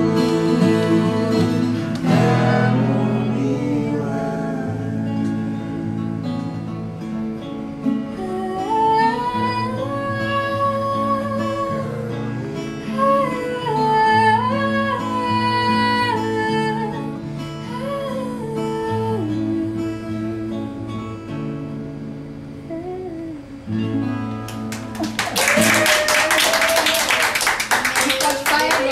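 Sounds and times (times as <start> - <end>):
wordless sung melody: 0.0 - 25.0
acoustic guitars strumming: 0.0 - 27.9
hands clapping: 24.4 - 28.9.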